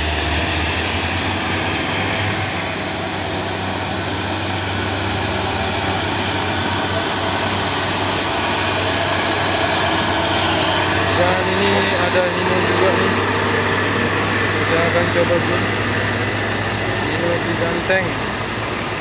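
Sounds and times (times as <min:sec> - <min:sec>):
diesel truck engine driving past: 0:00.0 - 0:19.0.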